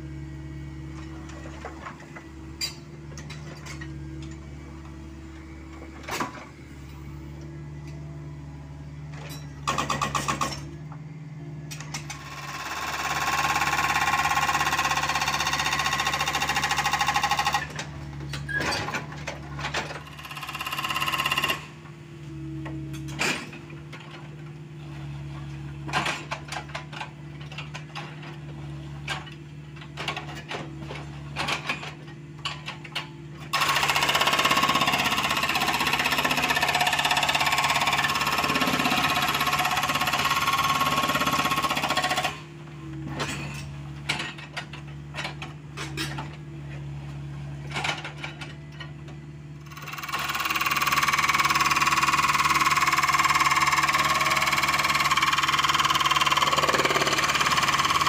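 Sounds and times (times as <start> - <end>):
hydraulic breaker hammering rock: 33.5 - 45.4, 49.6 - 58.0.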